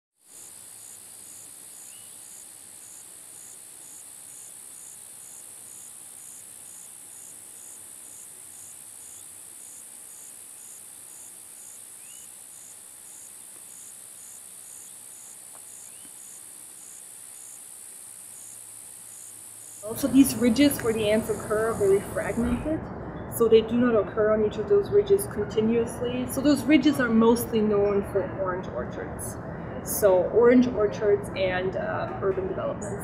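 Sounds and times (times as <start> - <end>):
high-pitched insect trill: 0.2 - 22.6
pulsing lower insect call: 0.2 - 23.7.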